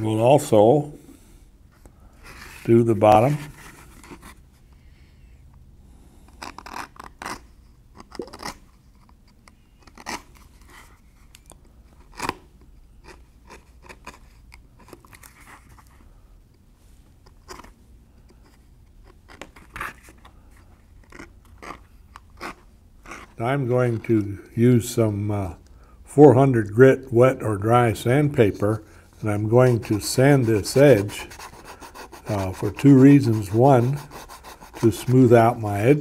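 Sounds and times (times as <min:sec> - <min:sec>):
edge beveler scraping leather: 0:06.4 - 0:07.5, 0:09.8 - 0:10.4, 0:21.0 - 0:23.4, 0:29.2 - 0:35.6.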